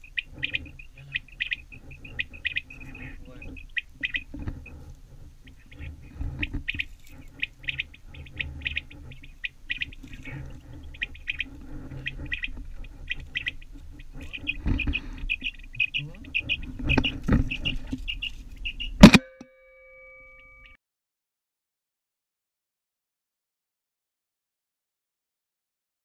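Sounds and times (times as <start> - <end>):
quail whistled calls: 0.0 - 4.8, 5.4 - 19.2
rustling and handling noise: 4.3 - 9.3.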